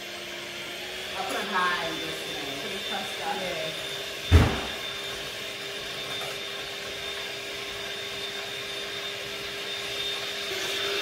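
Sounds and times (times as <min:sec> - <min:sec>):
electric hand mixer whipping cream: 0:00.0 - 0:11.0
loud thump: 0:04.3 - 0:04.8.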